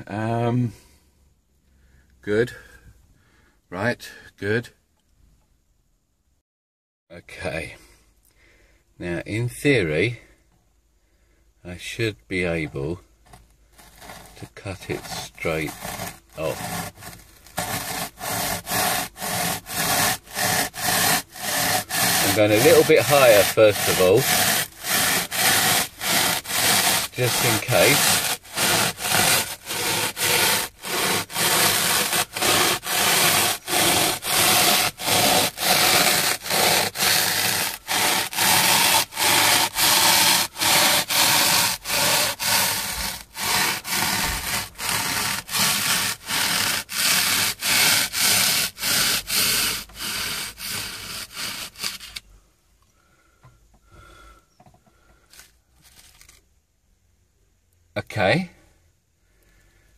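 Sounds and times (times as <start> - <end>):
hand saw rasping through foam: 12.8 - 52.3
faint handling sounds: 54.6 - 56.6.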